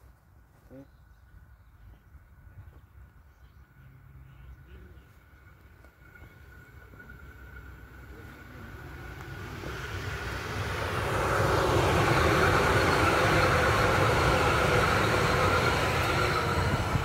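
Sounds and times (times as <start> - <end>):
train whine: 3.7 - 17.0
train wheels rumbling on rails: 4.6 - 17.0.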